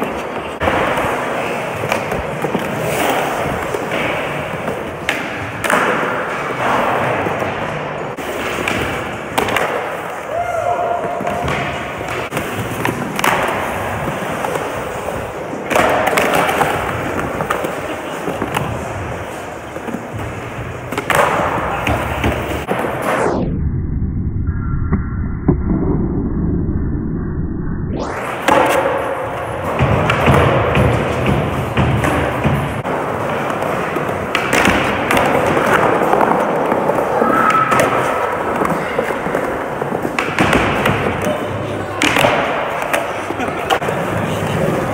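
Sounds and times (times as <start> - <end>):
skateboard wheels rolling on concrete: 0.0 - 23.4, 28.0 - 44.9
skateboard clacks: 28.4 - 44.9.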